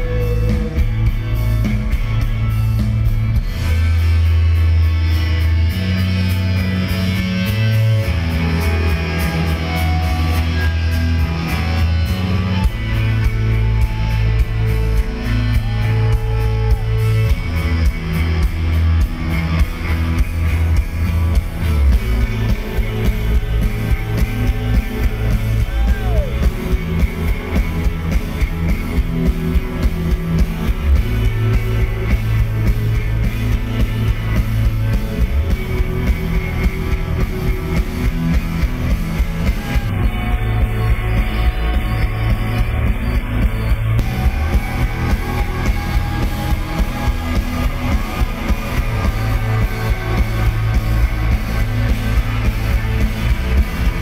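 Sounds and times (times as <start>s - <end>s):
live rock band playing: 0.0s - 54.0s.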